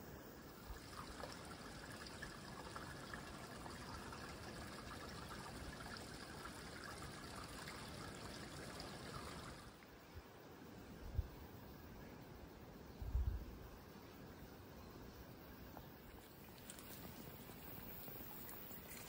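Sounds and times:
stream trickling: 0:00.2 - 0:10.2, 0:15.8 - 0:19.0.

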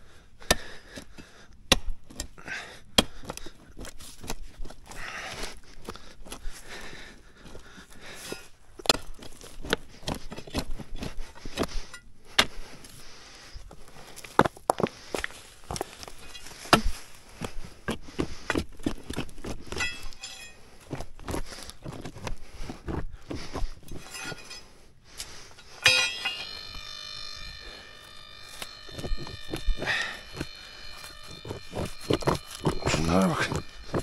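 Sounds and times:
knocks and scrapes: 0:17.9 - 0:24.8, 0:25.5 - 0:34.0
steady electronic tone: 0:25.6 - 0:34.0.

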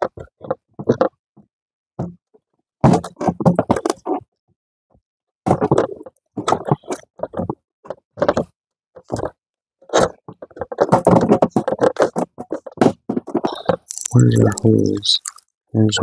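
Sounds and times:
plastic hose ribs scraping: 0:05.5 - 0:15.4.

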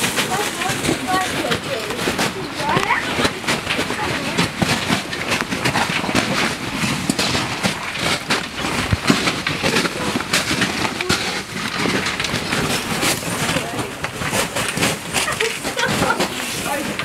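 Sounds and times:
boots crunching on ice: 0:00.0 - 0:17.0.

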